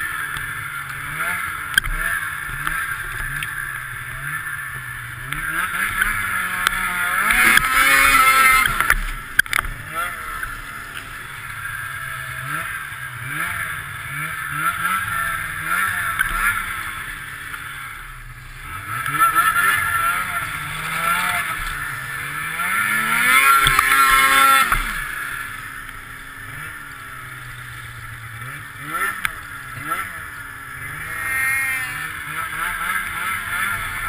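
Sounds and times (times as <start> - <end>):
snowmobile engine revving: 0.0 - 34.0.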